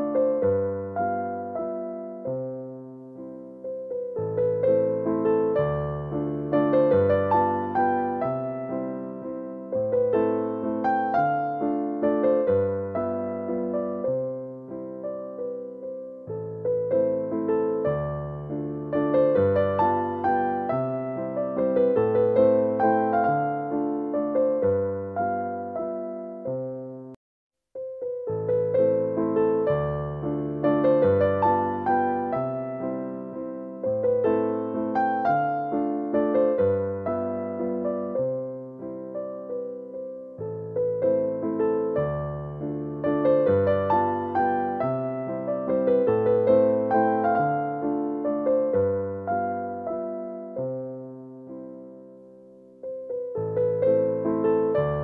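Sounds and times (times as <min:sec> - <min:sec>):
slow keyboard melody: 0:00.0 - 0:27.2, 0:27.8 - 0:55.0
slow piano music: 0:00.0 - 0:27.2, 0:27.8 - 0:55.0.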